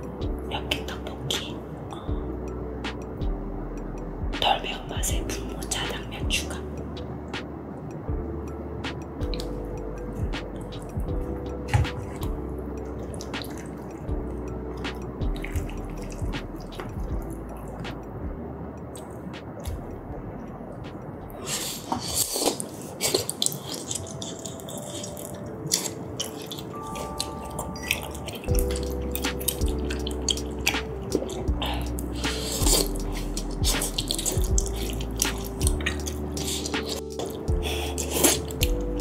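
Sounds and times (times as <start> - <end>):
soft background music: 0.0 - 39.0
wet eating mouth sounds: 21.4 - 39.0.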